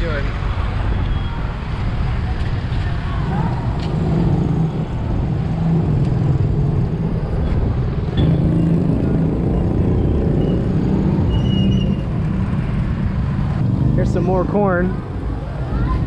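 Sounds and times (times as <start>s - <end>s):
street traffic noise: 0.0s - 16.0s.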